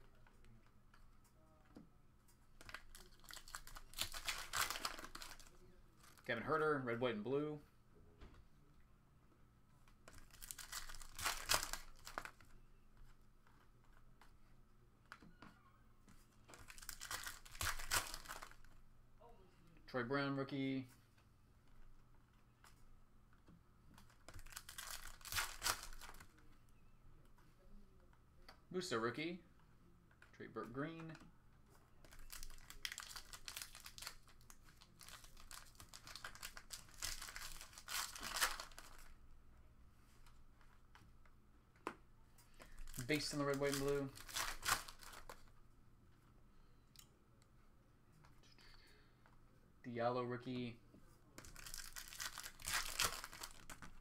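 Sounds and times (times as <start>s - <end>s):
foil wrapper crinkling and tearing: 2.6s - 5.6s, 10.2s - 12.3s, 16.6s - 18.6s, 24.3s - 26.2s, 32.0s - 39.1s, 42.8s - 45.4s, 51.4s - 54.0s.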